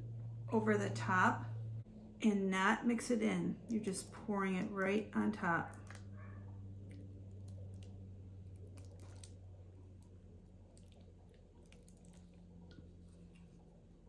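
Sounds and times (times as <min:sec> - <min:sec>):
steady low hum: 0:00.0 - 0:14.0
batter squishing while poured: 0:05.3 - 0:14.0.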